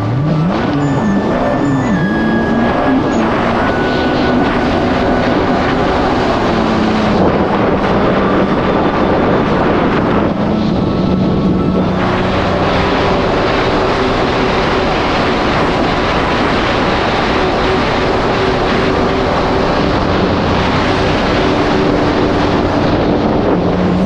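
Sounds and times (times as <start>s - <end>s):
jet ski engine drone: 0.0s - 24.0s
rushing water: 0.0s - 24.0s
wind noise on microphone: 0.0s - 24.0s.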